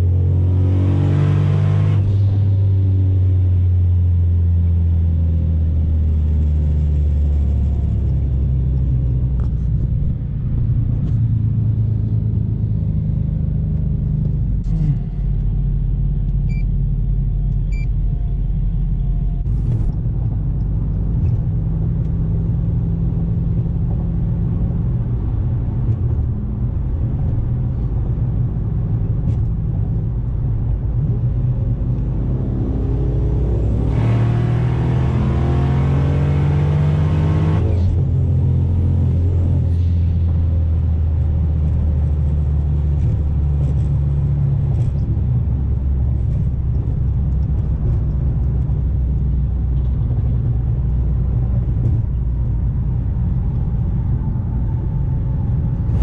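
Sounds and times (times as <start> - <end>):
car engine cruising: 0.0 - 56.0
road rumble: 0.0 - 56.0.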